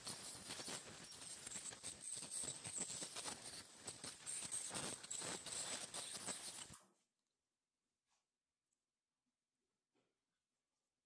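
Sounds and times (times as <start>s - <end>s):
scaler tip scratching teeth: 0.0s - 6.8s.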